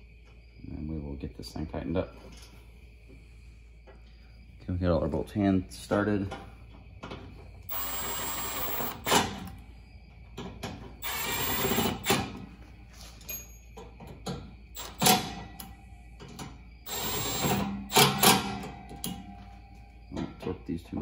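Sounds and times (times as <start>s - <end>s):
power driver running: 7.7s - 9.5s, 11.0s - 12.2s, 16.9s - 18.6s.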